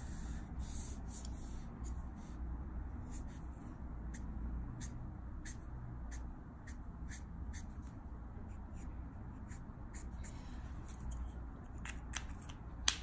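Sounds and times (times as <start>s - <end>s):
marker brushing over paper: 0.0s - 2.4s.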